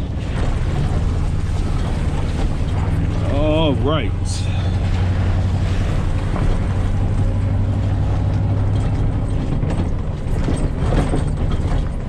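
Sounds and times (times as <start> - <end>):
vehicle engine humming: 0.0 - 12.0
rattling clicks and knocks: 7.8 - 12.0.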